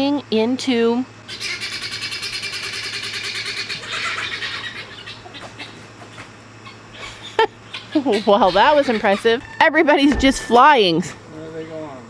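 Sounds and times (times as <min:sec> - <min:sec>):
poultry squawking: 0:01.2 - 0:10.8.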